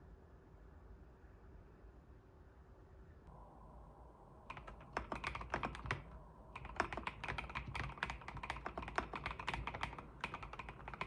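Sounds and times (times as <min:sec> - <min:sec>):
mechanical keyboard key clicks: 0:04.5 - 0:11.0.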